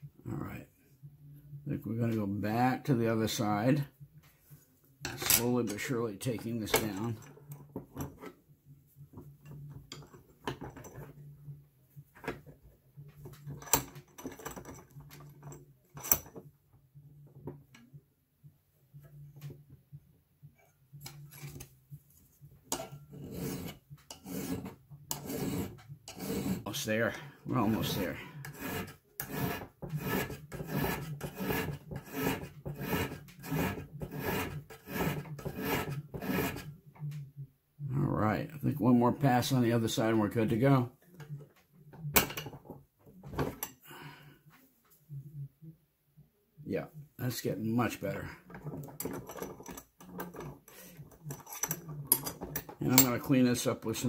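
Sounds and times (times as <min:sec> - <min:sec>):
file rasping on steel: 0:22.8 - 0:36.8.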